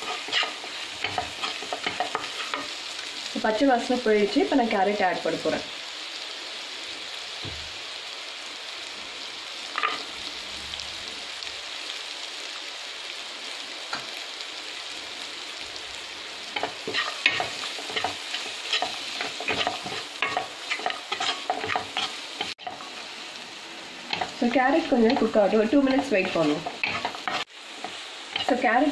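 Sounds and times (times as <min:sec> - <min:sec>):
wooden spatula scraping and stirring: 0:00.0 - 0:02.8, 0:16.6 - 0:22.9, 0:24.1 - 0:28.6
food sizzling in a pan: 0:00.0 - 0:28.9.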